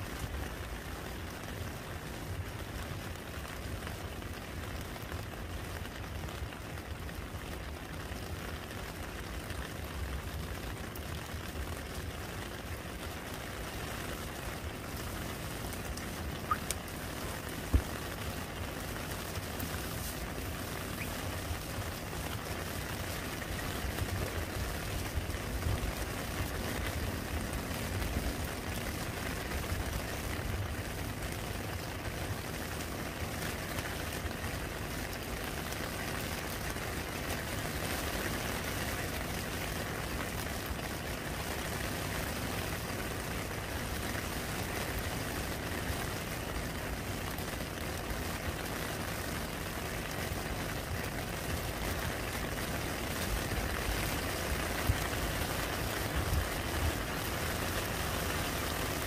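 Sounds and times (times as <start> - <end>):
rain falling into puddle: 0.0 - 59.0.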